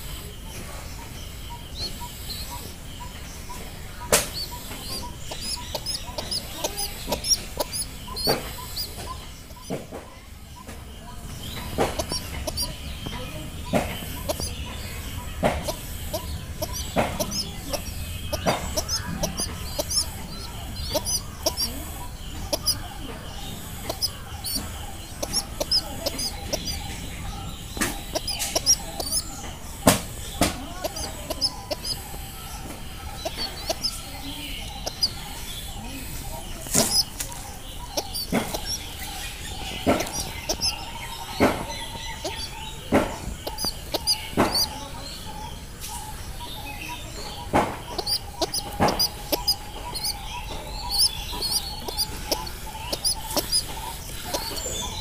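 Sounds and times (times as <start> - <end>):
faint high chirping: 0.0 - 55.0
sharp taps: 1.8 - 44.8, 47.2 - 55.0.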